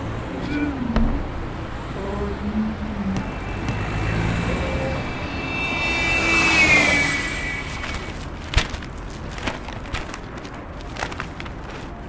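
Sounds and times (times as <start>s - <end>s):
steady low rumble: 0.0s - 12.0s
vehicle passing with whine: 0.9s - 8.4s.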